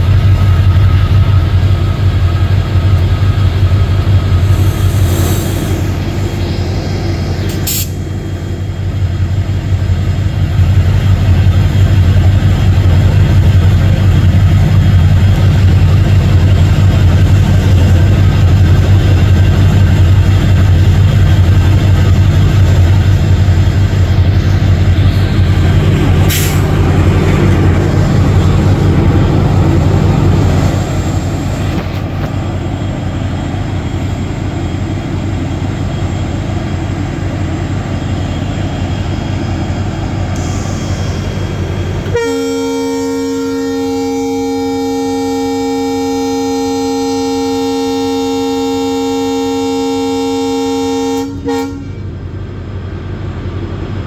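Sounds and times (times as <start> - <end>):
diesel generator humming: 0.0 - 54.0
brief sharp sound: 25.0 - 26.8.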